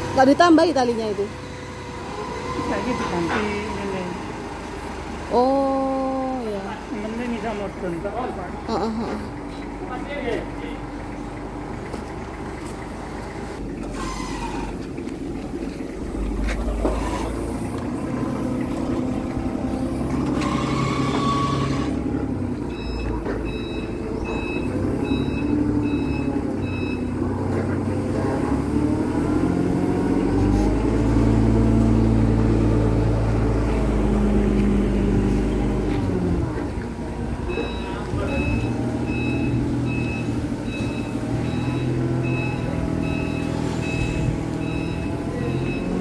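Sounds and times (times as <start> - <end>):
forklift engine running: 0.0 - 46.0
reversing beeper beeps: 22.7 - 27.1, 37.5 - 46.0.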